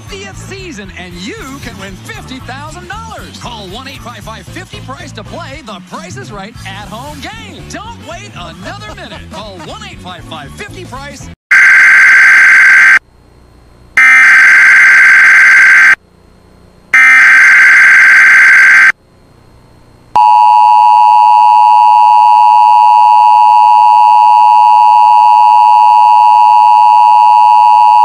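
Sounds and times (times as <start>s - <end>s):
two-tone attention signal: 11.5s - 13.0s, 14.0s - 16.0s, 17.0s - 18.9s
buzzy data bursts: 14.0s - 16.0s, 17.0s - 18.9s.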